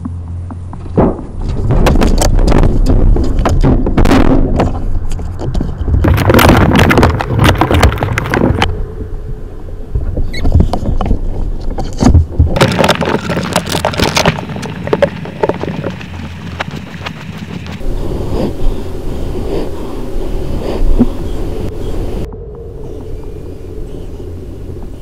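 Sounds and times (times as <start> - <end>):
steady low rumble: 0.0 - 25.0
faint squeaks: 10.1 - 12.0
animals scrabbling inside a box: 10.2 - 17.9.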